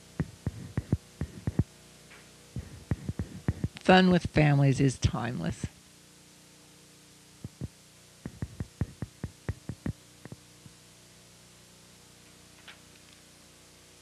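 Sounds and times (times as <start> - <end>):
short dull thumps: 0.0 - 1.7, 2.6 - 3.8, 8.3 - 10.4
faint electrical hum: 0.0 - 14.0.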